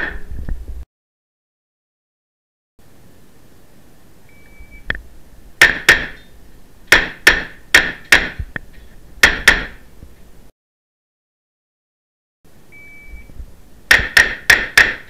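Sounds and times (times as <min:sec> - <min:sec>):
shot timer beep: 0:12.8 - 0:13.3.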